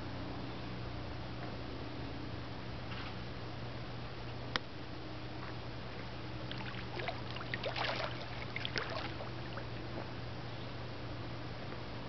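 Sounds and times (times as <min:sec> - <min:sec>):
low hum and hiss: 0:00.0 - 0:12.0
water splashing and sloshing: 0:06.0 - 0:10.0.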